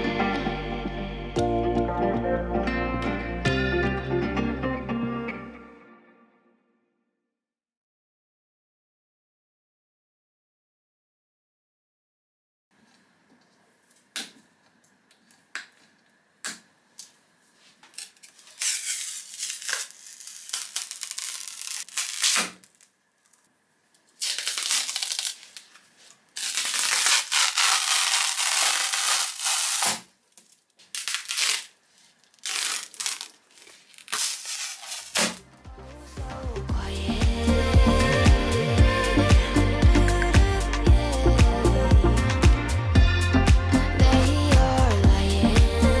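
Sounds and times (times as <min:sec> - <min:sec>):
nippers snipping plastic: 0:17.8 - 0:22.9, 0:26.4 - 0:31.7, 0:32.3 - 0:35.4
plastic sheet tearing and crinkling: 0:17.9 - 0:23.4, 0:24.2 - 0:35.5.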